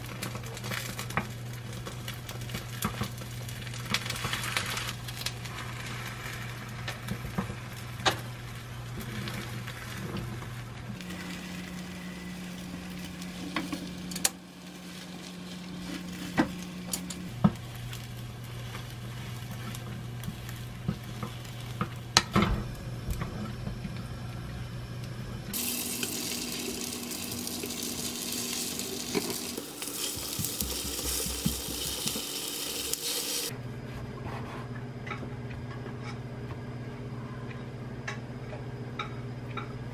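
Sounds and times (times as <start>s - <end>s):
egg batter sizzling in pan: 0.0s - 22.2s, 25.5s - 33.5s
utensils tapping a pan: 29.1s - 32.4s.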